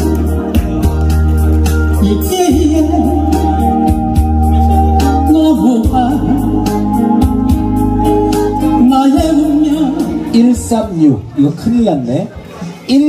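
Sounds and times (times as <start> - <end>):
electronic organ music with beat: 0.0 - 11.0
person singing with vibrato: 2.0 - 10.5.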